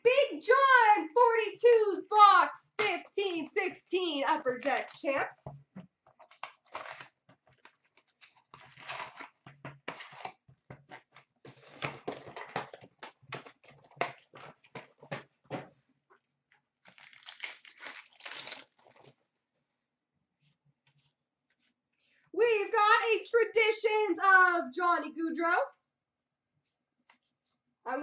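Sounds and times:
card packs crinkling and tearing: 6.2 - 15.3, 16.8 - 19.2
cardboard box tearing open: 6.3 - 7.2, 8.1 - 10.4, 16.9 - 18.8.

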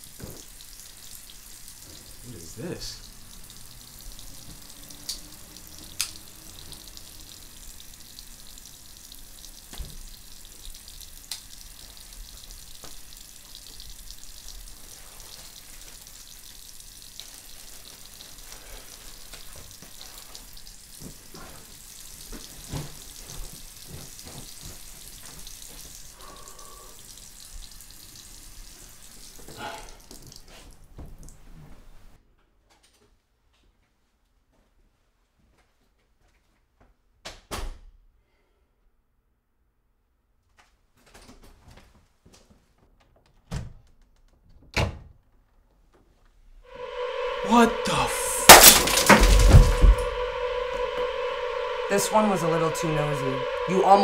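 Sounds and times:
faucet running into sink: 0.0 - 30.4.

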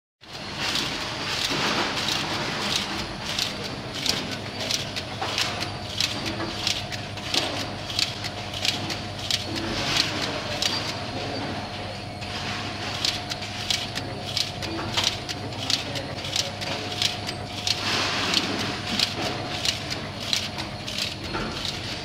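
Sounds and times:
steady motor hum: 0.2 - 22.0
labeling machine hiss: 12.2 - 22.0.

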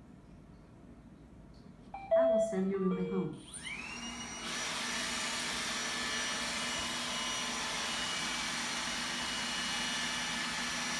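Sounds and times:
robot vacuum fan whine: 3.4 - 10.9.

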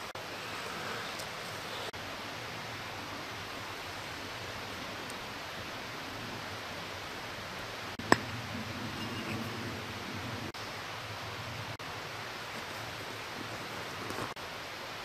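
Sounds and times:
outdoor background hiss: 0.0 - 15.0
handling rustle: 12.4 - 14.4.

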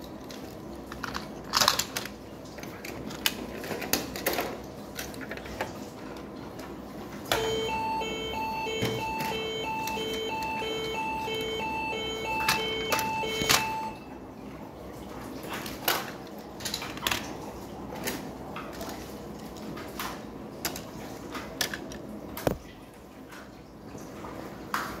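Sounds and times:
toy siren beeping two-tone: 7.3 - 14.1.

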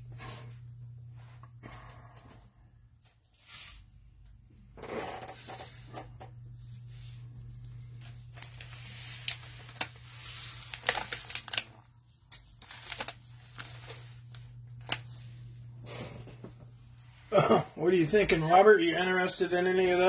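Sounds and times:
steady low hum: 0.0 - 20.0
foil packs crinkling and rustling: 7.6 - 15.4.

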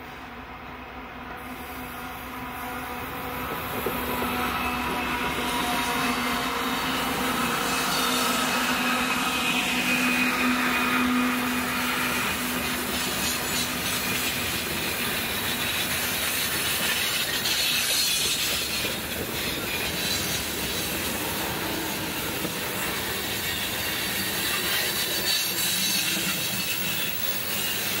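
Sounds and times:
diesel locomotive engine drone: 0.0 - 28.0
high wheel squeal: 4.2 - 28.0
wheels rolling on rails: 11.3 - 28.0.

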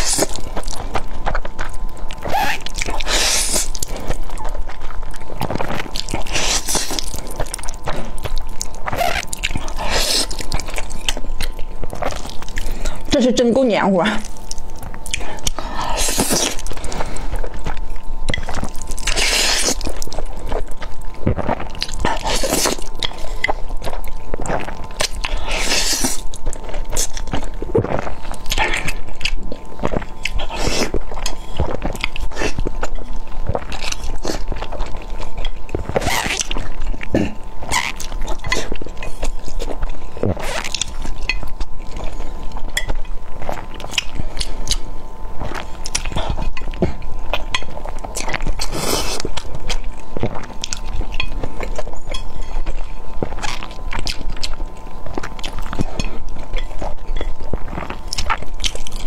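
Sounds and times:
biting and chewing eggs: 0.0 - 13.1, 14.2 - 59.0
person slurping noodles: 8.9 - 10.4.

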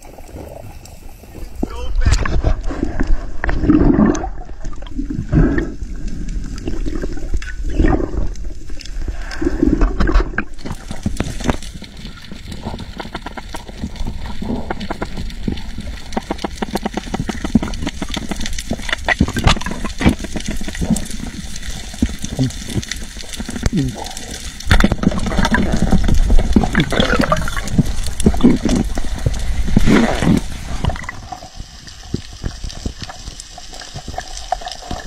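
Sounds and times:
underwater bubbling and gurgling: 0.0 - 35.0
snapping shrimp crackle: 10.4 - 31.4.

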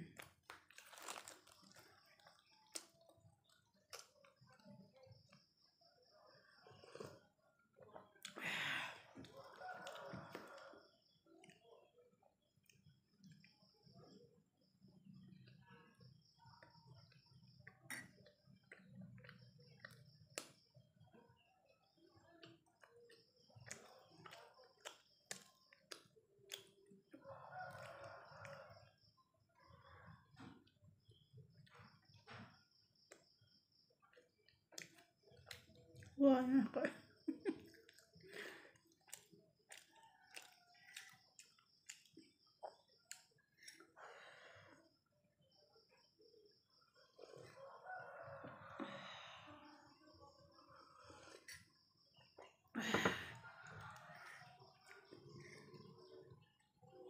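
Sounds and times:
soft chewing: 0.0 - 8.4, 9.1 - 36.2, 36.9 - 49.0, 50.2 - 57.0.

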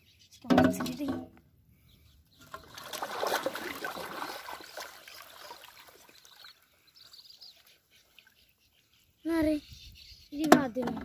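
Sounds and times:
water splashing and sloshing: 2.4 - 8.7.

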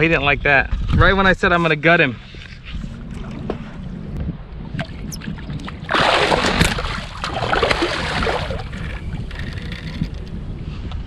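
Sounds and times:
water splashing hard: 4.8 - 8.8.

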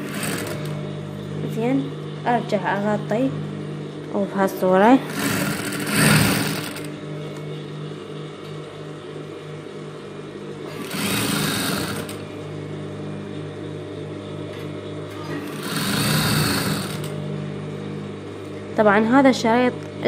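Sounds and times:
sewing machine stitching: 0.0 - 0.7, 5.0 - 6.9, 10.7 - 12.2, 15.2 - 17.2.

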